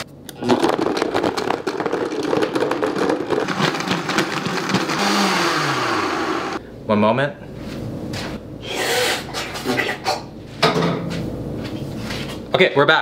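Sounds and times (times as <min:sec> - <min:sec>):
blender motor running: 0:02.6 - 0:06.6.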